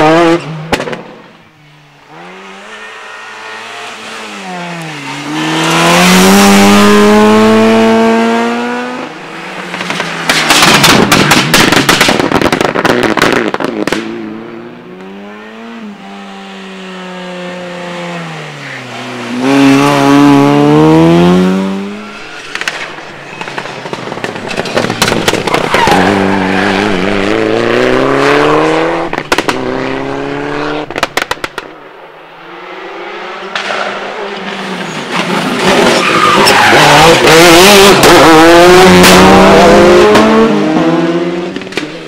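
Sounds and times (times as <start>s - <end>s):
rally car engines revving: 0.0s - 42.0s
rapid sharp cracks and pops: 30.9s - 31.7s.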